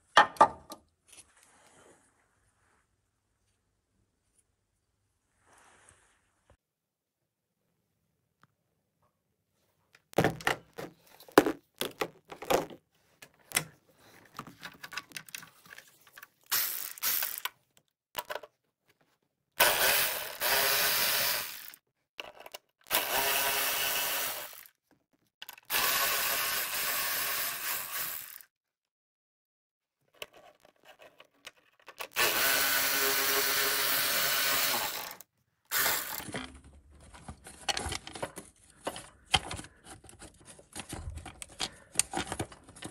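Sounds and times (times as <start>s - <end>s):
electric ratchet running: 16.5s - 17.5s, 19.6s - 21.8s, 22.9s - 24.7s, 25.7s - 28.5s, 32.2s - 36.3s.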